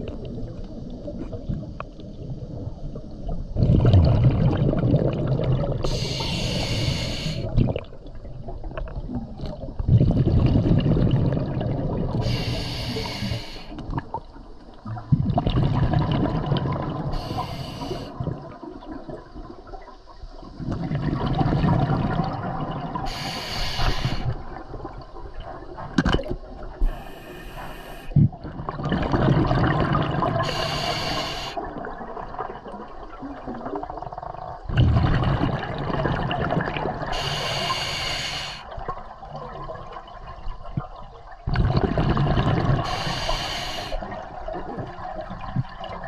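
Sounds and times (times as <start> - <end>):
exhaled bubbles rushing: 1.4 - 12.4, 13.8 - 19.9, 20.5 - 23.3, 28.2 - 30.7, 31.6 - 37.7, 38.7 - 43.2, 44.0 - 46.0
regulator breath hiss: 5.9 - 7.5, 12.2 - 13.8, 17.1 - 18.2, 23.1 - 24.4, 26.8 - 28.2, 30.4 - 31.6, 37.1 - 38.7, 42.8 - 44.1.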